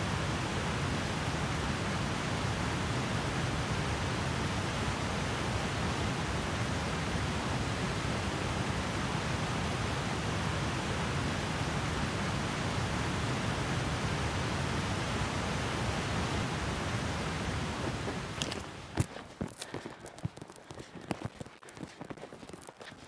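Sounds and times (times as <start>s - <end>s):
stream rushing over rocks: 10.1s - 22.9s.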